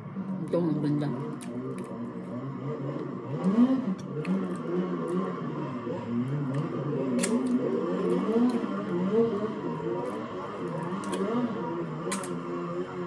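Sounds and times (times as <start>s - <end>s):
low humming voice: 0.0s - 13.0s
finger-licking smacks: 6.5s - 8.6s, 12.1s - 12.4s
wet mouth clicks: 6.5s - 11.4s, 12.1s - 12.4s.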